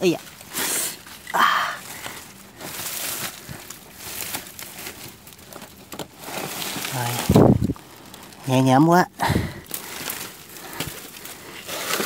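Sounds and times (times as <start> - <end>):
dry grass and twigs rustling: 0.0 - 12.0.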